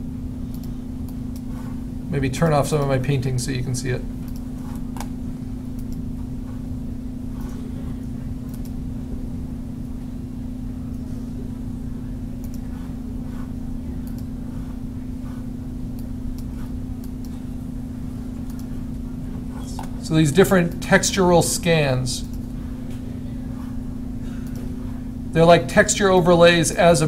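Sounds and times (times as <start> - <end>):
low electrical hum: 0.0 - 27.0
faint mouse clicks: 0.5 - 1.5.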